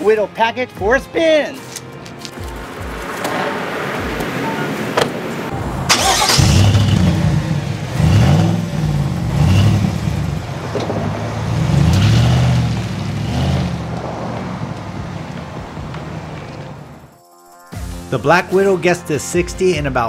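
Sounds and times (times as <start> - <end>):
truck engine accelerating: 2.3 - 17.1.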